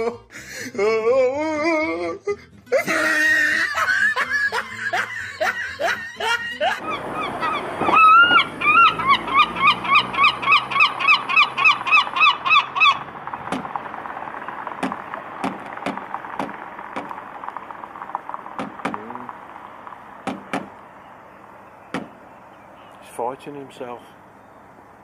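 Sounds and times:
herring gull laughing calls: 2.8s - 13.1s
sharp taps: 13.3s - 14.0s, 14.6s - 20.9s, 21.9s - 22.2s.

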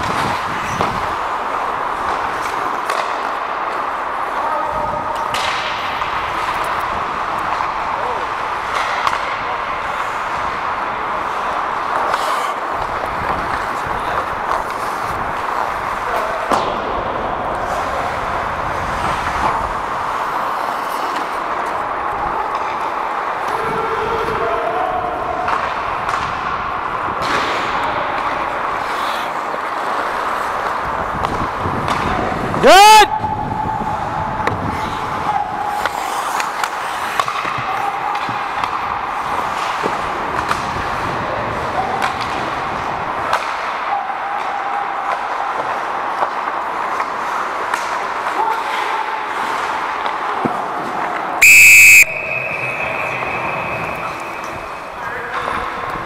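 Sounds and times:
skates scraping ice: 0.0s - 51.4s, 52.0s - 56.0s
sticks and puck clacking: 0.0s - 56.0s
referee's whistle blast: 51.4s - 54.6s
players calling out: 51.4s - 55.8s.

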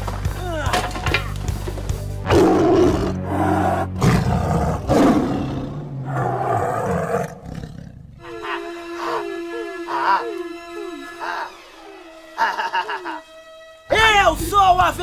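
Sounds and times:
background music: 0.0s - 15.0s
big cat roaring: 2.2s - 8.2s.

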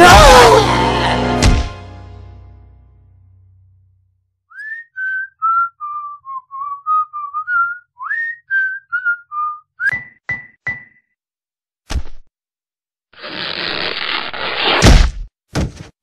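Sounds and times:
person whistling a tune: 4.5s - 10.2s.

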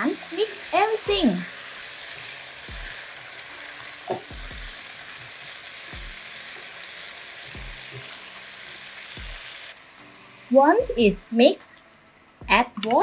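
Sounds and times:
pumpkin sizzling in hot oil: 0.0s - 11.5s
spatula stirring in a pan: 0.2s - 9.7s.

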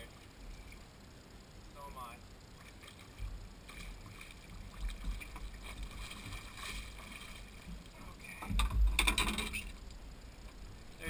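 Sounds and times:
fish splashing: 2.5s - 9.8s
water splashing against a boat: 2.5s - 9.9s.

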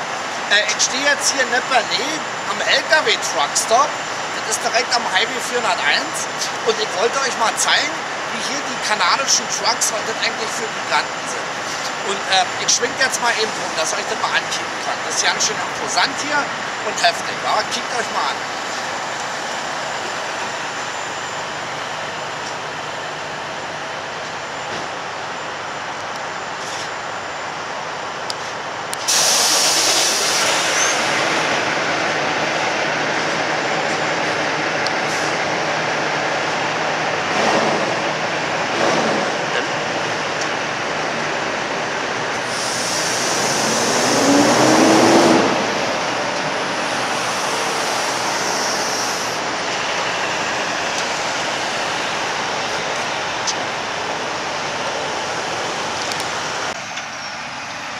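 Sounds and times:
traffic noise: 0.0s - 57.9s
truck engines running: 0.0s - 57.9s
high air hiss: 29.0s - 31.5s, 42.4s - 45.4s, 46.4s - 53.3s.

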